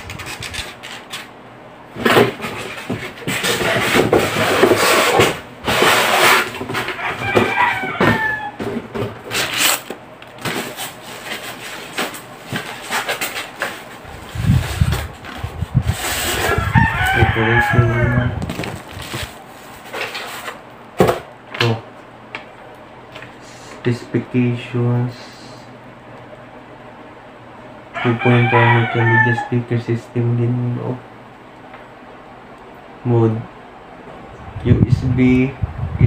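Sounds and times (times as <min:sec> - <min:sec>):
rustling of packing: 0:18.4 - 0:20.6.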